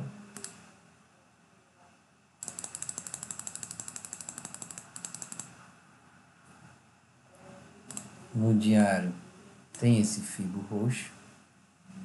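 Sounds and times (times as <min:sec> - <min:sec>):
mouse scroll wheel clicking: 0:00.3 - 0:00.6, 0:02.4 - 0:05.5, 0:07.9 - 0:08.1.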